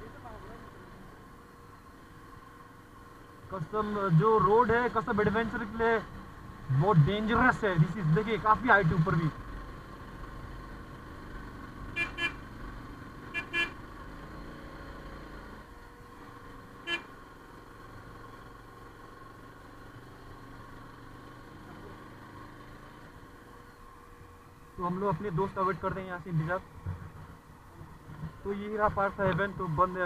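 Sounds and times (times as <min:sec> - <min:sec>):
engine and road hum: 0:00.0 - 0:30.0
vehicle horn beeps: 0:12.0 - 0:12.4, 0:13.3 - 0:13.8, 0:16.8 - 0:17.1.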